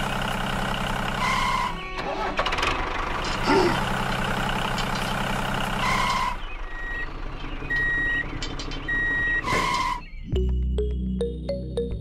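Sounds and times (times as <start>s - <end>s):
diesel engine running: 0.0s - 11.9s
reversing alarm beeps: 5.9s - 7.1s, 7.7s - 8.3s, 8.9s - 10.1s.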